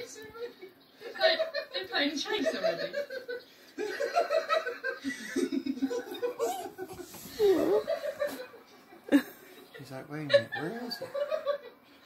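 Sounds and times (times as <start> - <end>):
woman laughing: 1.1 - 9.8.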